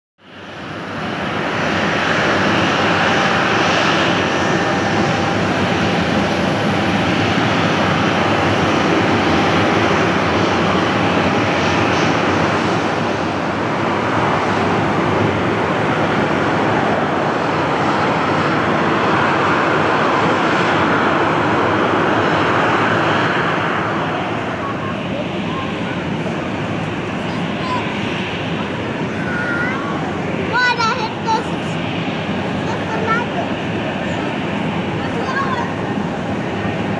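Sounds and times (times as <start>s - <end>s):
jet engines hiss and rumble: 0.2s - 36.9s.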